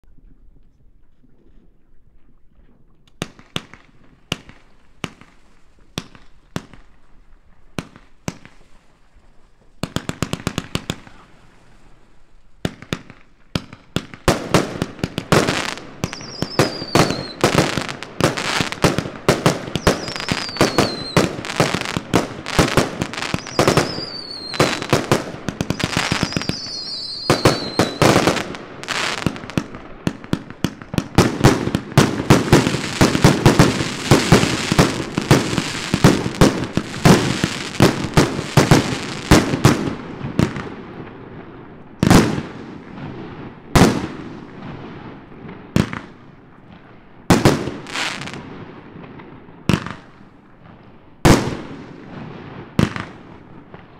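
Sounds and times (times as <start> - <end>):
fireworks launching and bursting: 3.2 - 53.9
falling firework whistles: 15.5 - 18.8, 19.5 - 29.6.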